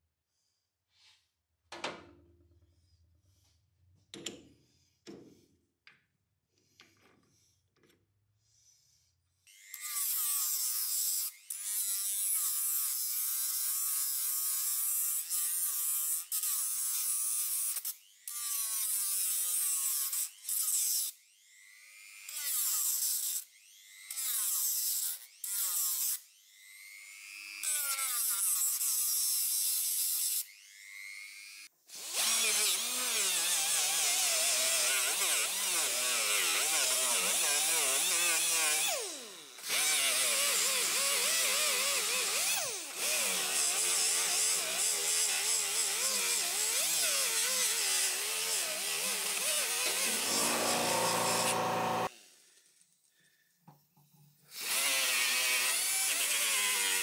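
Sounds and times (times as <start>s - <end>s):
rotary tool whining: 47.6s - 52.1s.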